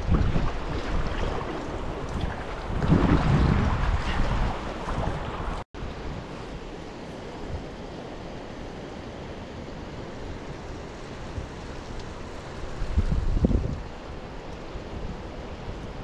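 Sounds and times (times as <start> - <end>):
creek water rushing: 0.0 - 16.0.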